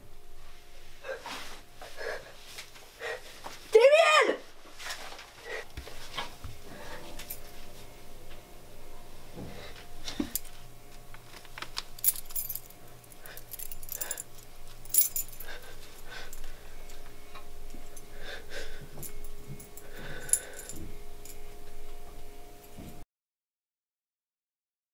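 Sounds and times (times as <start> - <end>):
faint steady hum: 0.0 - 23.0
keys jangling: 11.8 - 16.5, 19.0 - 21.4.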